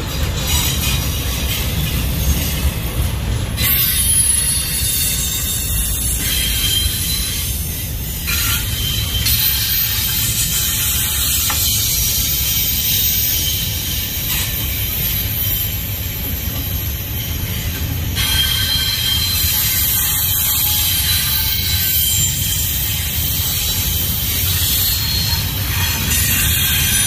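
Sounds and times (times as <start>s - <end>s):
train wheels rumbling on rails: 0.0s - 27.0s
high-pitched wheel squealing: 3.6s - 14.0s, 16.6s - 27.0s.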